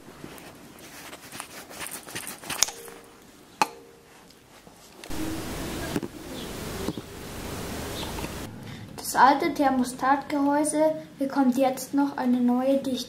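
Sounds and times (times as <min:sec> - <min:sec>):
pliers ticking and scraping metal: 0:01.9 - 0:05.1
steady hiss: 0:04.9 - 0:09.3.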